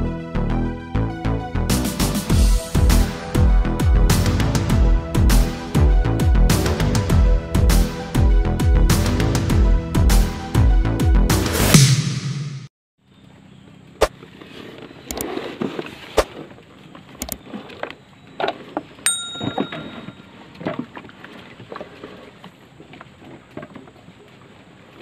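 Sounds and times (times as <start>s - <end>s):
intro music: 0.0s - 12.7s
short electronic chime: 19.1s - 20.3s.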